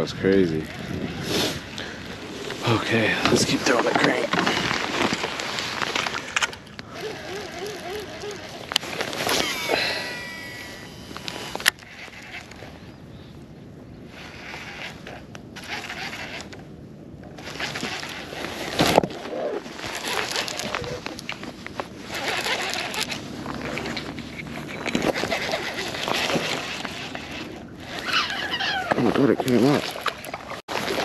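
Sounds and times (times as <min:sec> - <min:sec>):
fishing reel spool whirring: 0:00.6 - 0:01.8, 0:06.2 - 0:12.8, 0:14.0 - 0:16.7, 0:17.4 - 0:18.9, 0:19.7 - 0:31.0.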